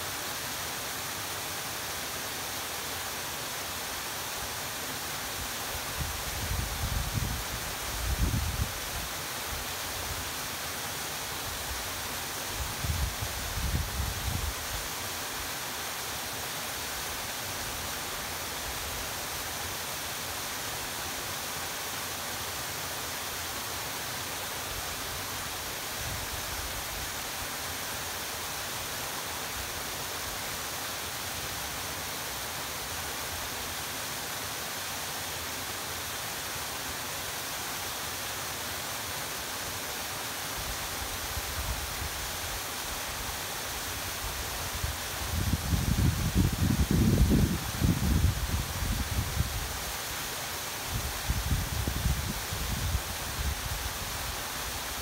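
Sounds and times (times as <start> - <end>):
wind rumbling on microphone: 6.0 - 9.0, 12.6 - 14.8, 44.7 - 49.8, 50.9 - 54.2.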